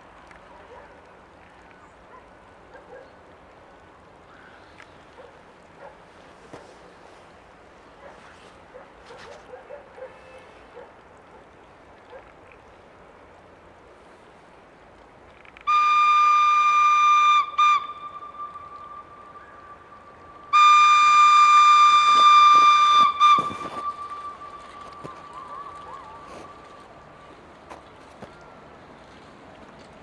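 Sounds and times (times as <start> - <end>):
train horn blasts: 15.6 - 26.6.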